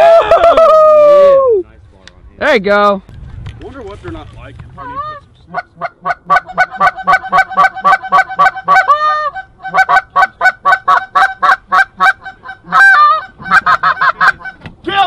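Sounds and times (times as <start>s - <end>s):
goose honking and clucking: 4.8s - 14.7s.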